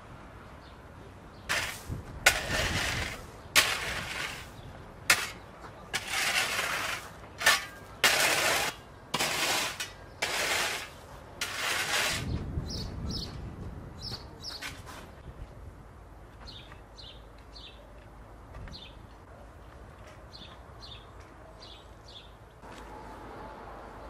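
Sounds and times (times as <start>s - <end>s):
shovel scraping gravel: 1.5s - 12.4s.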